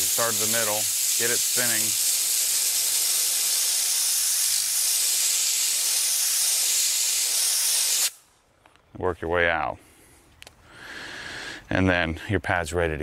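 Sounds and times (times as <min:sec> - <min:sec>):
compressed air hissing: 0:00.0 - 0:08.3.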